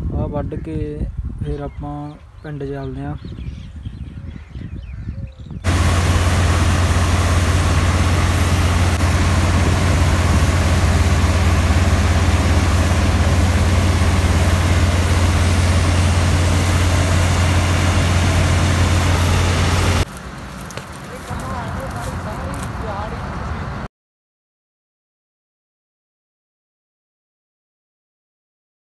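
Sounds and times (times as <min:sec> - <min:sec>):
combine harvester droning: 0:05.6 - 0:23.8.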